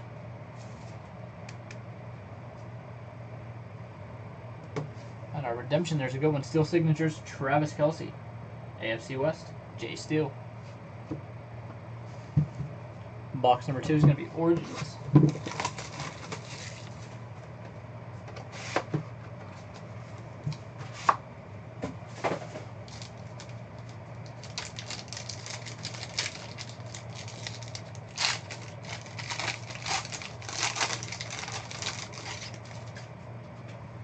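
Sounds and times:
low hum: 0:00.0 - 0:34.0
foil pack crinkling: 0:15.3 - 0:17.1, 0:22.8 - 0:33.0.

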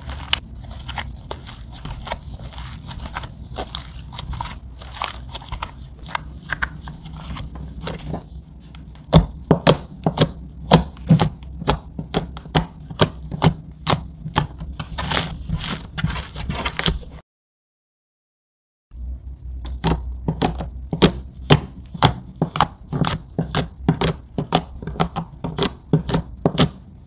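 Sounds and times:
slime squishing: 0:00.0 - 0:17.2.

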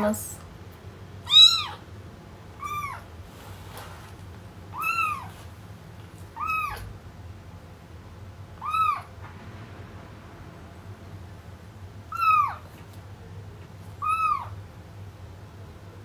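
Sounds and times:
kitten meowing: 0:01.3 - 0:01.8, 0:02.6 - 0:03.1, 0:04.7 - 0:05.3, 0:06.4 - 0:06.9, 0:08.6 - 0:09.1, 0:12.1 - 0:12.7, 0:14.0 - 0:14.6.

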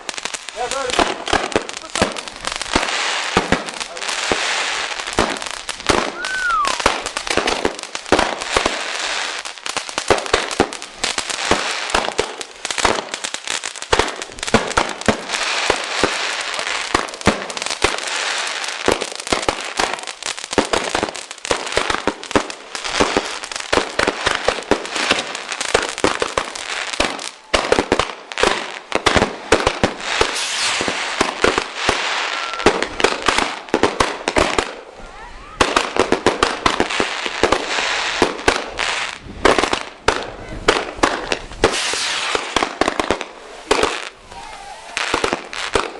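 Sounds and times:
fireworks crackling and banging: 0:00.0 - 0:45.9
falling whistle: 0:06.2 - 0:06.8.

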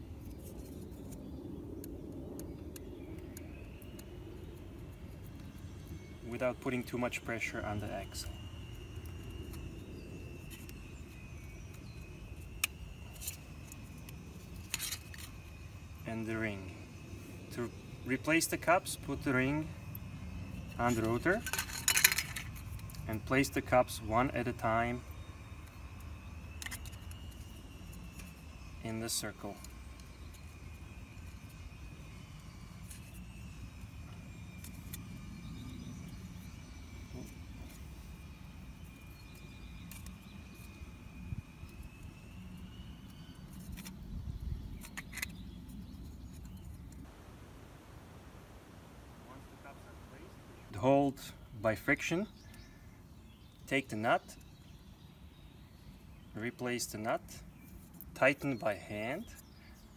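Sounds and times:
faint high whine: 0:00.0 - 0:59.9
low outdoor rumble: 0:45.4 - 0:51.8.

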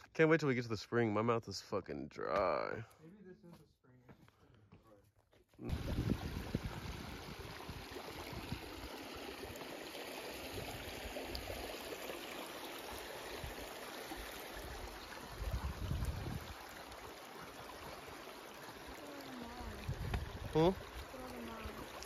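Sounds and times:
creek water trickling over rocks: 0:05.6 - 0:22.0.

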